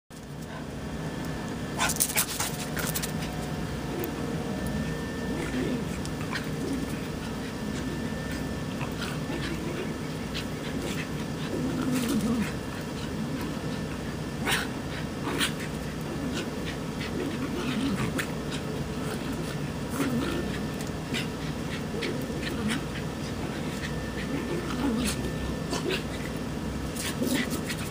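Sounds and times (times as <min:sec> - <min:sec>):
dogs growling: 0:01.7 - 0:27.9
dogs panting: 0:12.4 - 0:17.5.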